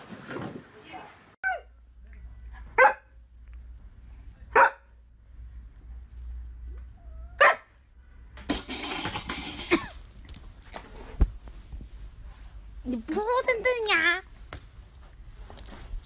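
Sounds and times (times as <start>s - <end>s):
large dog barking: 2.8s - 3.1s, 4.5s - 4.9s, 7.4s - 7.7s
rough noise: 8.0s - 10.0s.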